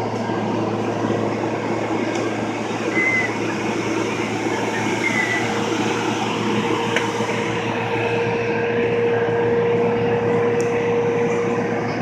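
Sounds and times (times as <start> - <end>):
ferry engines droning: 0.0 - 12.0
short high squeaks: 2.9 - 3.4.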